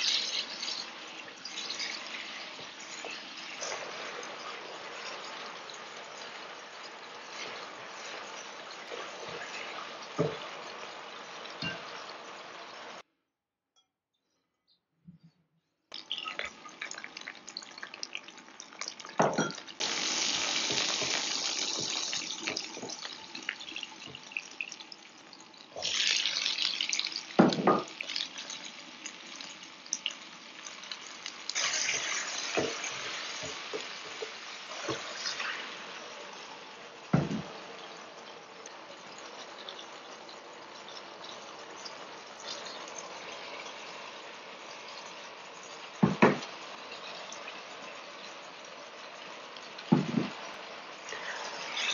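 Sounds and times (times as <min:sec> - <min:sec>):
food sizzling in hot oil: 0:00.0 - 0:13.0, 0:15.9 - 0:51.9
knocks against a wok: 0:37.2 - 0:37.5, 0:46.0 - 0:46.5, 0:49.9 - 0:50.4.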